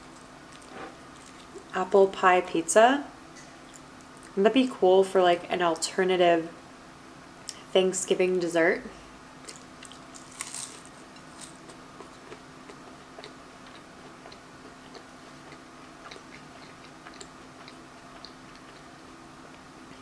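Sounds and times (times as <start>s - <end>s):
chewing crunchy pastry: 0.0s - 1.8s, 9.4s - 20.0s
faint steady hum: 0.0s - 20.0s.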